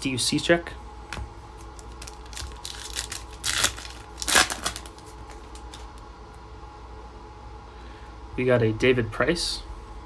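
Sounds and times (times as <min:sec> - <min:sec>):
card pack wrapper tearing and crinkling: 0:01.6 - 0:06.0.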